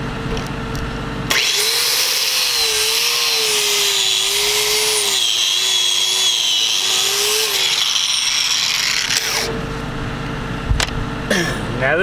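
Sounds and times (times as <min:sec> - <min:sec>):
angle grinder on steel: 0:01.3 - 0:09.6.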